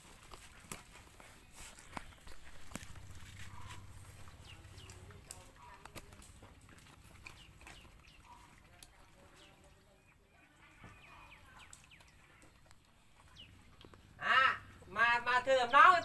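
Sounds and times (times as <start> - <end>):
puppies eating wet smacking: 0.0 - 14.9.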